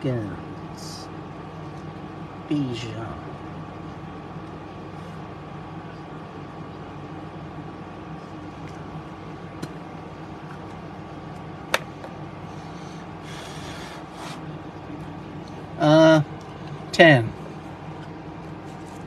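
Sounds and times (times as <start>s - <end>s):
mechanical room hum: 0.0s - 19.0s.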